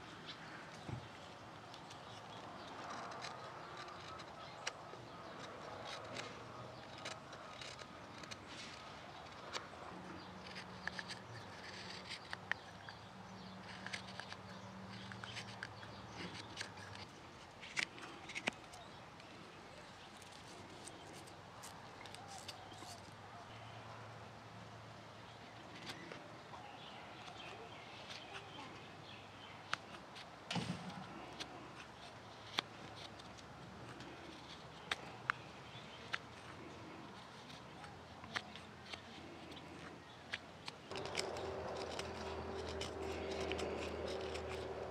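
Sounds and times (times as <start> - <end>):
faint low hum: 0.0 - 44.9
knife paring wood: 0.7 - 19.3, 20.0 - 23.1, 29.6 - 44.9
sharp clicks of chips shearing: 1.7 - 18.9, 29.1 - 44.9
knife slicing wood: 2.7 - 9.7, 40.3 - 44.9.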